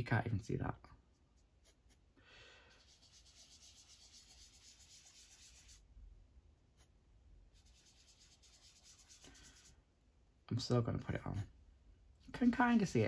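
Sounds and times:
pastel tool rubbing on paper: 2.7 - 5.9, 7.5 - 9.8.

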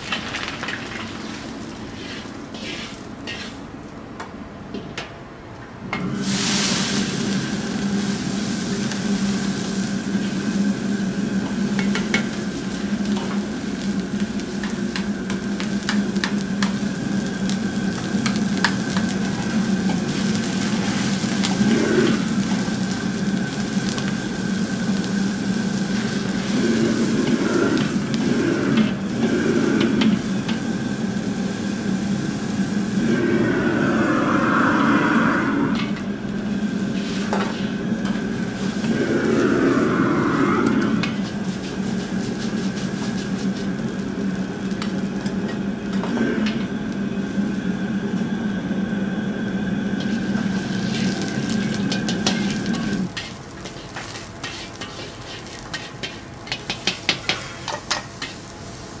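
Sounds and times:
garlic sizzling in hot oil: 0.0 - 3.7, 6.0 - 33.2, 41.2 - 48.9, 49.5 - 59.0
water boiling: 0.0 - 4.0, 5.8 - 59.0
gas stove humming: 0.0 - 59.0
wok brush swishing: 1.9 - 3.6, 53.1 - 56.3
metal ladle scraping a wok: 2.0 - 3.6, 53.2 - 58.4.

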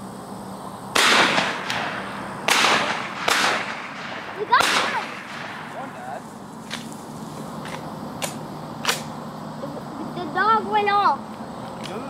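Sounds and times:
shotgun shots echoing: 1.0 - 6.1.

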